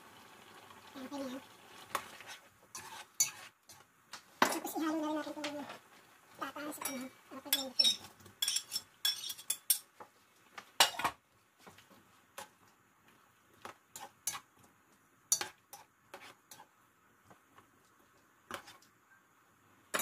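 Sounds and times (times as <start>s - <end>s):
vegetables being stirred: 0.5s - 19.0s
metal spoon clinking on pot: 6.8s - 9.9s.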